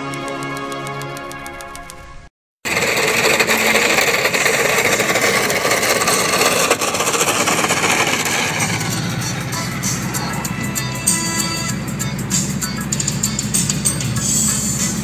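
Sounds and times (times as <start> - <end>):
toy truck scraping over road: 2.7 - 11.6
music sting: 7.8 - 15.0.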